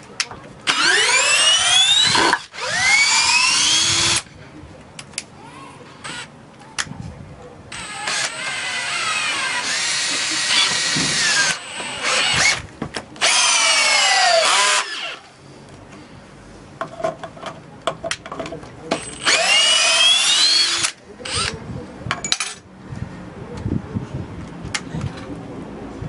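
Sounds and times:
drill motors whining: 0.7 - 4.2, 7.7 - 12.6, 13.2 - 15.2, 19.0 - 21.5.

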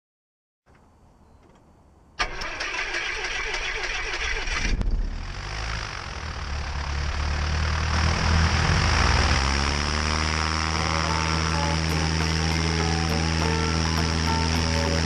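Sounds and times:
aircraft engine and propeller: 3.9 - 15.0
background music: 8.0 - 15.0.

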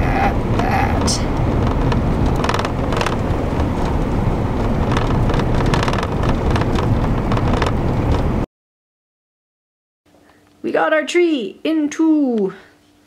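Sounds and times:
knocks and rattles over bumps: 0.0 - 8.4
engine and tyre rumble: 0.0 - 8.5.

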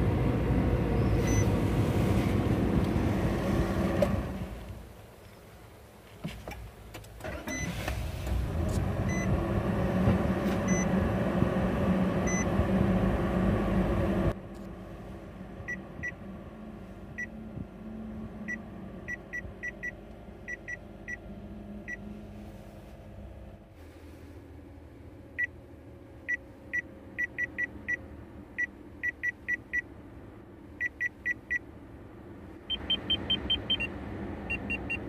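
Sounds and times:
car engine running: 0.0 - 34.9.

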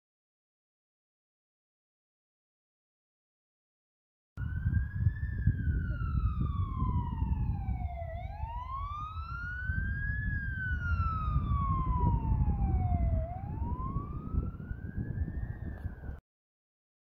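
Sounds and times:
fire engine siren wailing: 4.4 - 16.2.

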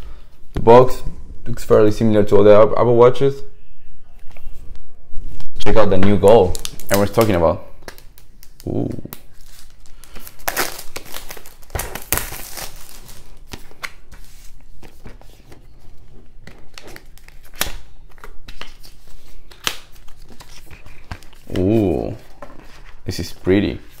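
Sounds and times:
plastic wrap crinkling: 5.7 - 24.0.

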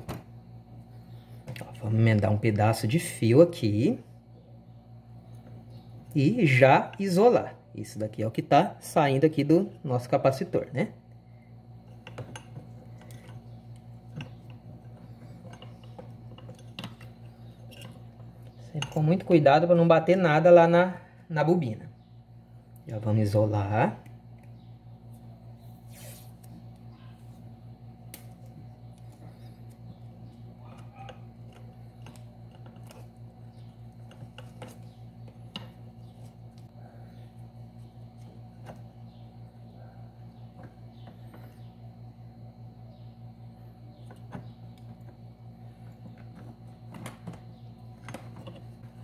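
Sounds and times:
steady low hum: 0.0 - 49.0
clicks of wires being handled: 11.8 - 19.3, 28.0 - 36.7, 44.0 - 49.0
tape and wire rustling: 28.1 - 36.7.

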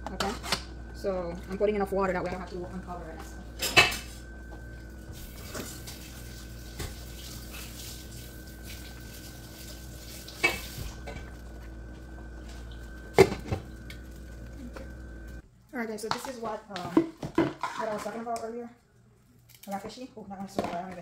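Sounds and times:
steady background hum: 0.0 - 21.0
metal cookware clinking: 3.6 - 4.1.

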